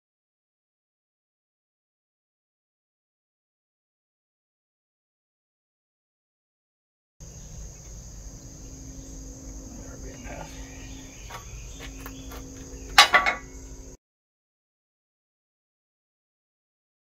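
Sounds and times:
crickets chirring: 7.2 - 14.0
metal crackling under load: 9.7 - 13.8.

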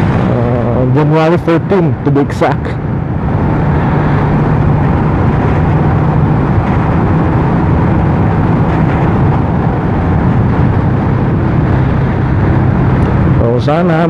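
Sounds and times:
motorcycle engine running: 0.0 - 1.0
wind and road noise: 0.0 - 14.0.

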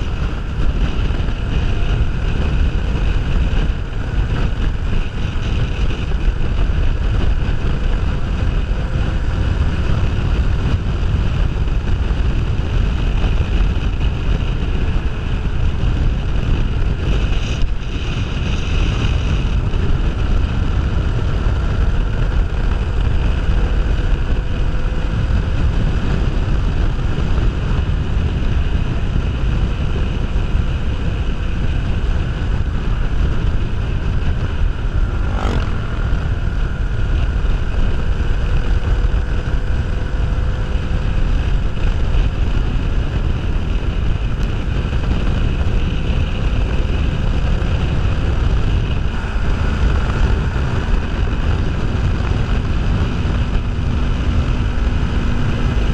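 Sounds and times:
motorcycle engine cruising: 0.0 - 55.9
wind rushing over microphone: 0.0 - 55.9.

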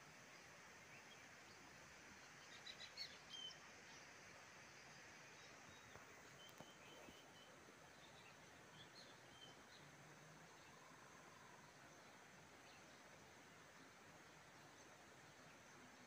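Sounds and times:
faint bird chirps: 0.8 - 4.1, 4.7 - 13.2.

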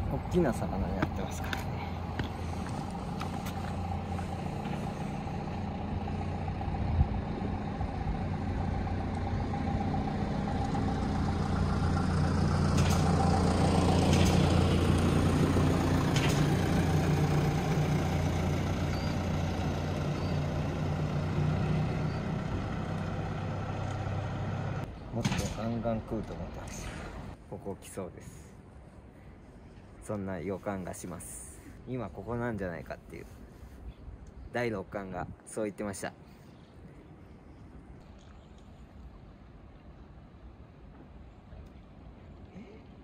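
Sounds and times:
truck engine humming: 0.0 - 27.4.

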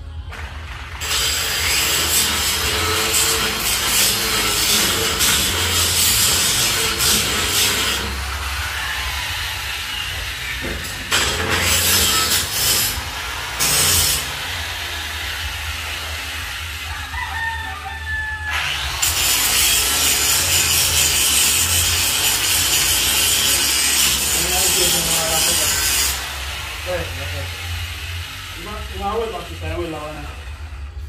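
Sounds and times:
harsh hissing noise: 1.0 - 17.2, 18.8 - 31.0
rooster crowing: 8.1 - 10.8, 14.2 - 19.0.

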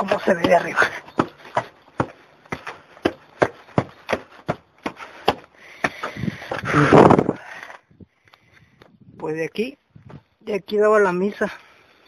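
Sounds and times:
footsteps on masonry steps: 0.0 - 7.4.

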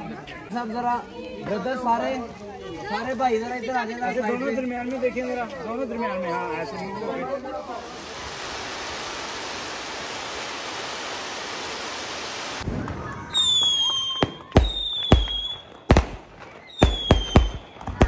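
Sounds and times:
fountain fireworks hissing: 7.0 - 18.0
firework bangs: 7.8 - 18.0
fireworks whistling: 7.8 - 18.0.

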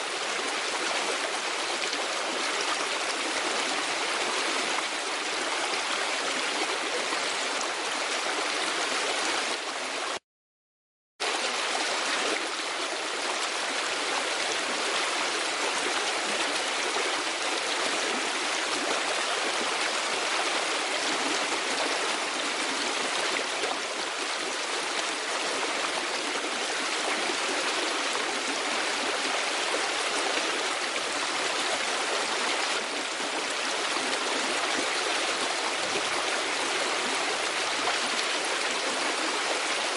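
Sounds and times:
running water rushing: 11.2 - 39.9.

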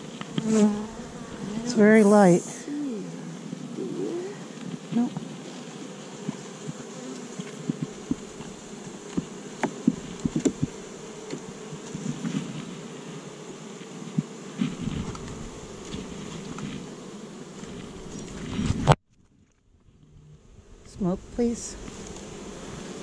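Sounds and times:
honeybees buzzing: 0.0 - 19.0, 20.3 - 23.0.

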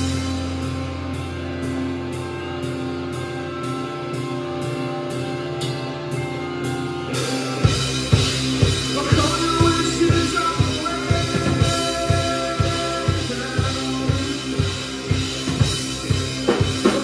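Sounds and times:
electric guitar chords: 0.0 - 17.0.

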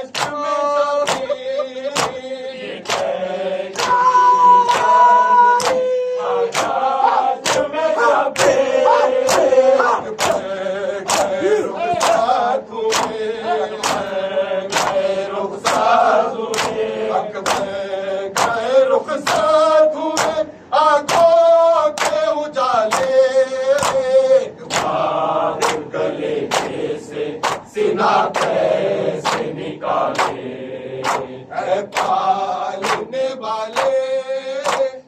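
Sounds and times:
men chanting in unison: 0.0 - 35.0
hands slapping chests: 0.1 - 0.4, 1.0 - 2.2, 2.8 - 3.1, 3.8 - 4.1, 5.6 - 5.9, 6.5 - 6.8, 9.3 - 10.5, 11.1 - 12.3, 12.9 - 13.2, 13.8 - 14.1, 14.7 - 15.0, 16.5 - 16.8, 24.7 - 25.0, 27.4 - 27.7, 29.2 - 29.5, 31.0 - 31.3, 32.8 - 33.1.

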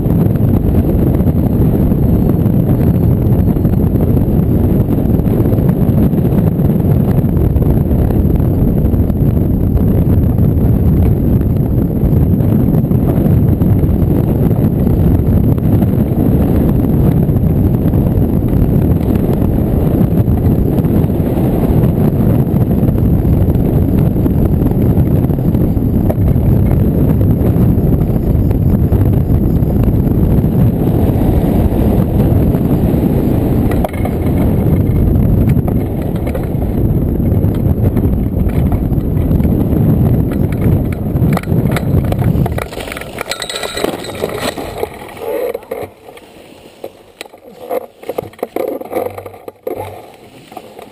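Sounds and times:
wind rushing over microphone: 0.0 - 50.9.

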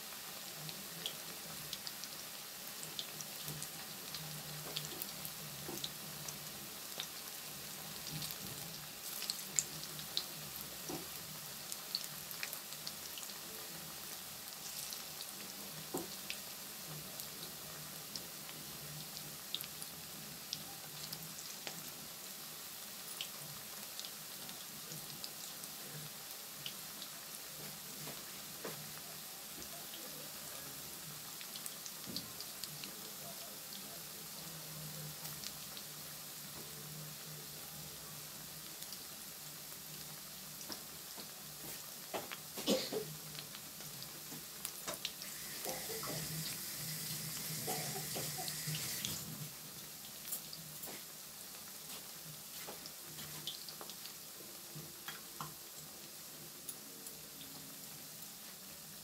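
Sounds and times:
food deep-frying in oil: 0.0 - 59.0
oil crackling and popping: 40.6 - 46.7.

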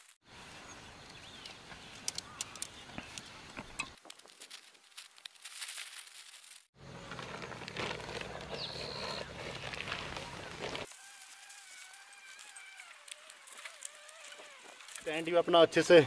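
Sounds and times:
small clicks and crackles: 1.4 - 15.3
tent fabric rustling: 4.0 - 15.0.

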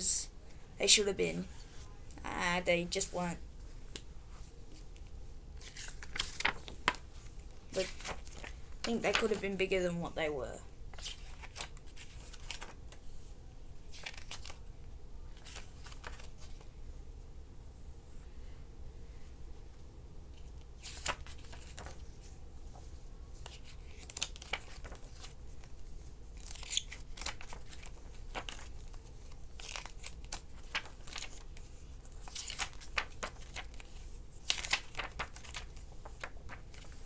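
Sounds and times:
paper pages rustling: 3.9 - 9.6, 10.9 - 13.1, 13.8 - 14.7, 15.3 - 16.7, 20.4 - 37.0.

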